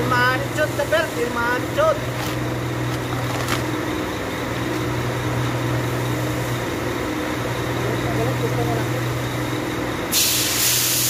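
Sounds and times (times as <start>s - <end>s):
low machinery drone: 0.0s - 11.0s.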